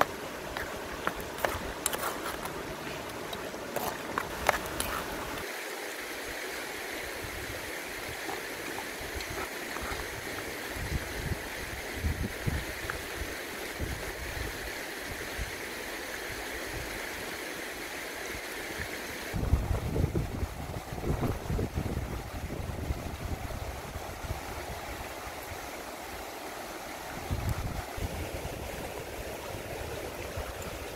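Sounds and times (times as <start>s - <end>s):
rocky river rushing: 0.0s - 16.4s
wind buffeting microphone: 7.2s - 13.0s, 19.3s - 25.0s, 27.2s - 30.9s.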